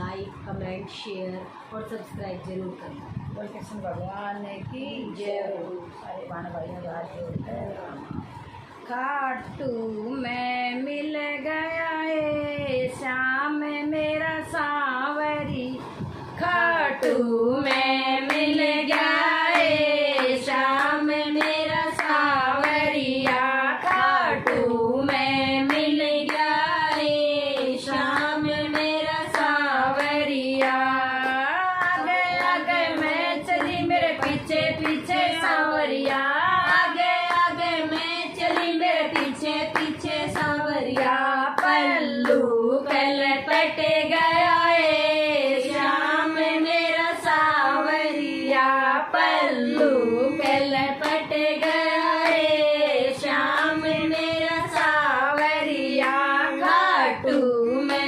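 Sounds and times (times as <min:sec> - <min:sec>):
women singing devotional song: 0:00.0 - 0:58.0
hands clapping in rhythm: 0:17.0 - 0:45.0, 0:47.3 - 0:58.0.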